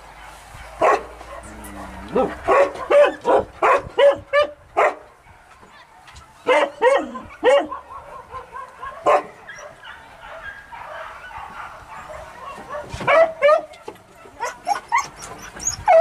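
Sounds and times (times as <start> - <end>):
dogs barking: 0.0 - 16.0.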